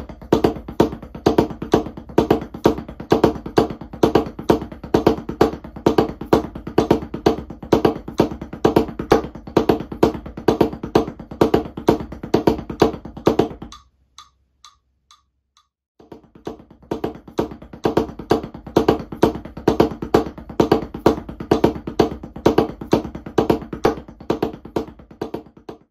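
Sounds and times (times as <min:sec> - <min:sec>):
drumsticks on practice pad: 0:13.6 - 0:15.8.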